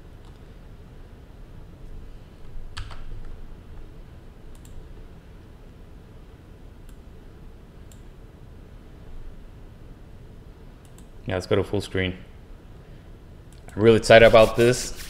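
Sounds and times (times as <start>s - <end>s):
low steady hum: 0.0s - 15.0s
computer mouse clicks: 4.5s - 4.8s, 7.9s - 8.1s, 10.8s - 11.1s.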